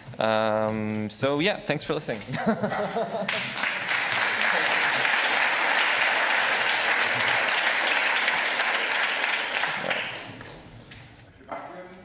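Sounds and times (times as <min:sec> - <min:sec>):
audience applauding: 0:03.2 - 0:10.6.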